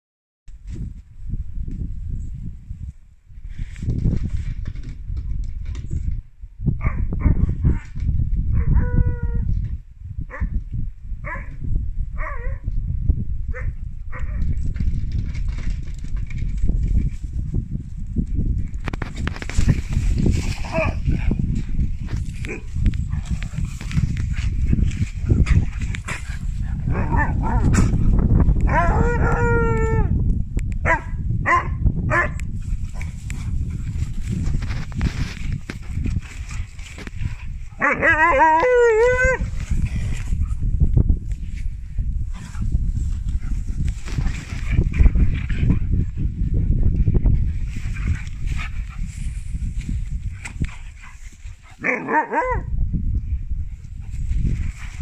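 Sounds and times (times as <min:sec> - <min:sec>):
puppy howling: 0:28.7 - 0:30.1, 0:37.8 - 0:39.4.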